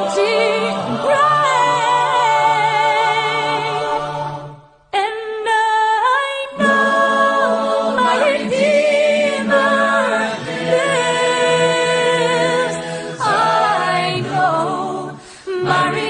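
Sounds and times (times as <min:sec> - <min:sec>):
gospel choir singing: 0:00.0 - 0:16.0.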